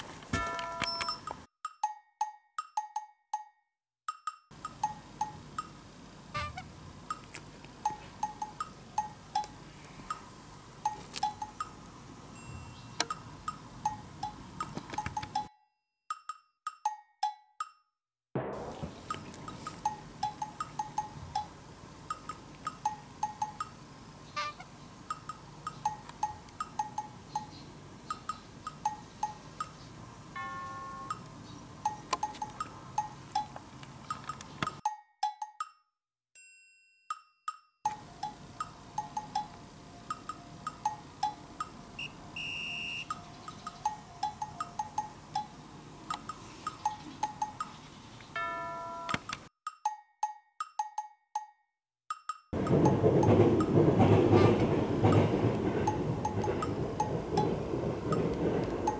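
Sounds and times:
light plinking percussive music: 0:00.4 - 0:05.7, 0:12.4 - 0:15.5, 0:16.1 - 0:17.9, 0:19.1 - 0:23.8, 0:25.1 - 0:29.8, 0:30.4 - 0:33.6, 0:34.8 - 0:35.8, 0:37.1 - 0:42.4, 0:43.1 - 0:47.8, 0:48.4 - 0:53.9.

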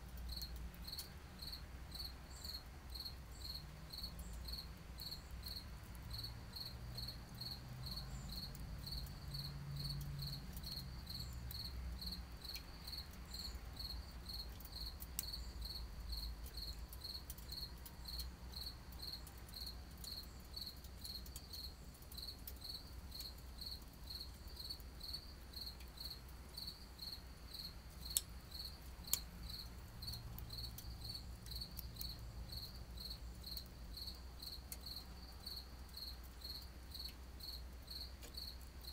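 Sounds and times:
cricket chirping: 0:00.2 - 0:38.9
burning twigs popping: 0:27.6 - 0:32.3.

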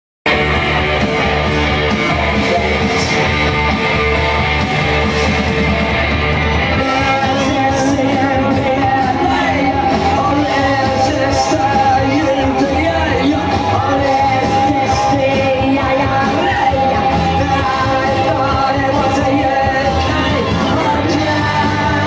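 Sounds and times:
guitar: 0:00.2 - 0:22.0
rock and roll music: 0:00.2 - 0:22.0
person singing: 0:01.7 - 0:03.8, 0:06.7 - 0:22.0.

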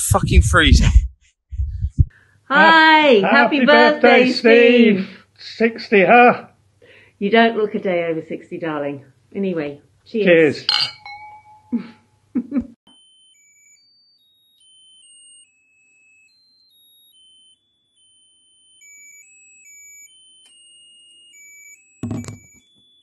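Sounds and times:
tinny electronic tune: 0:03.3 - 0:05.0, 0:10.7 - 0:12.0.

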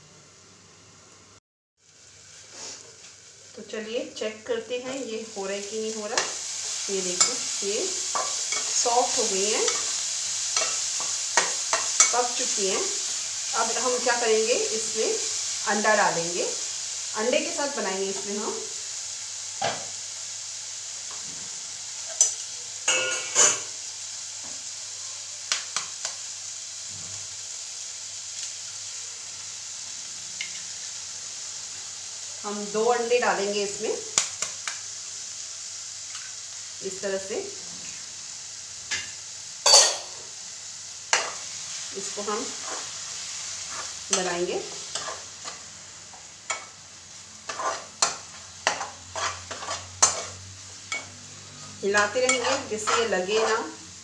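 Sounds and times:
greens sizzling in a pot: 0:00.0 - 0:54.0
metal spoon scraping a pot: 0:44.9 - 0:45.3, 0:47.5 - 0:51.1, 0:52.0 - 0:53.7.

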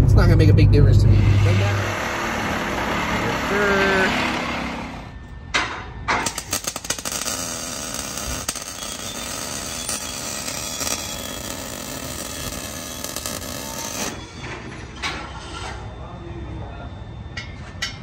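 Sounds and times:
harsh hiss of exhaust work: 0:01.1 - 0:05.1.

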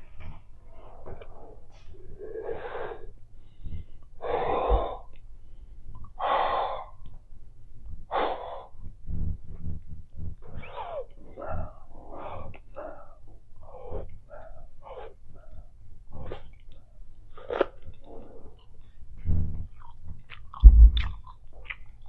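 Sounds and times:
chewing and mouth noises: 0:16.2 - 0:18.9, 0:19.6 - 0:22.0.

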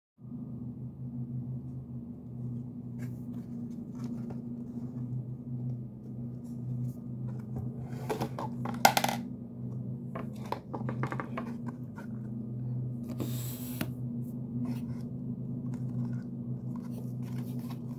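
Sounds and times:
steady low hum: 0:00.2 - 0:17.9.

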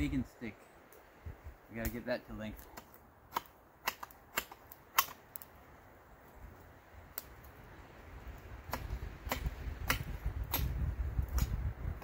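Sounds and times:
wood cracking and snapping: 0:02.6 - 0:05.5.

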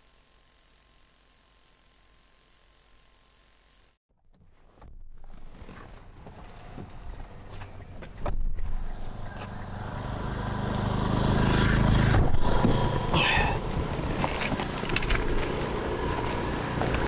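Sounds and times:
car engine and tyre noise: 0:04.3 - 0:17.0.

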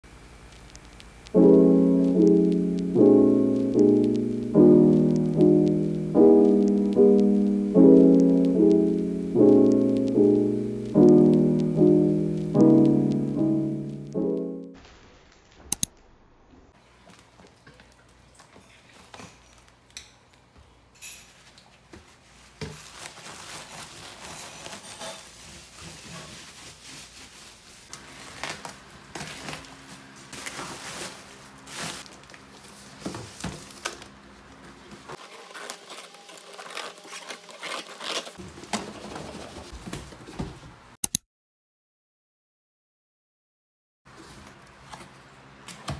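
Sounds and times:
bubble wrap crinkling: 0:00.7 - 0:12.9, 0:22.1 - 0:34.2, 0:35.2 - 0:38.4
scissors cutting plastic and tape: 0:35.2 - 0:38.4.

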